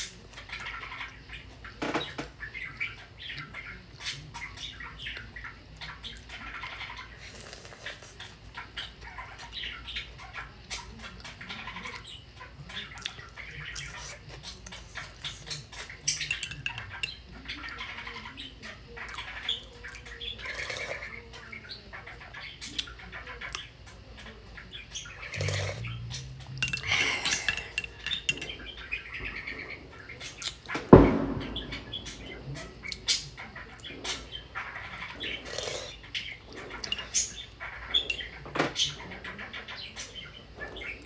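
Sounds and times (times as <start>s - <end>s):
chewing crackers: 7.2s - 8.5s
metal spoon clinking in mug: 16.2s - 17.2s, 26.6s - 28.5s.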